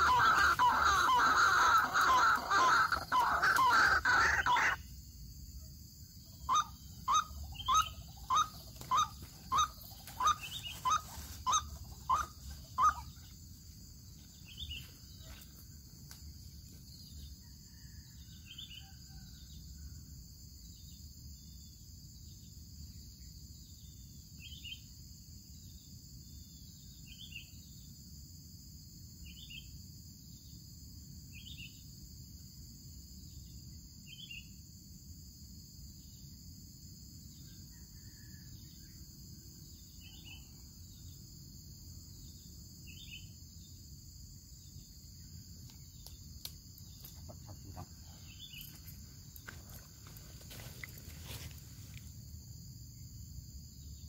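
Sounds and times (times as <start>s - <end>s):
bird calling harsh notes: 0.0s - 4.8s, 6.5s - 13.1s
high insect drone: 0.0s - 54.0s.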